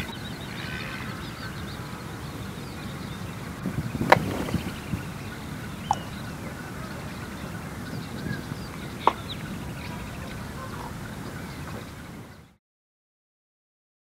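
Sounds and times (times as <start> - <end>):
steady background hiss: 0.0 - 12.5
faint bird chirps: 0.0 - 12.6.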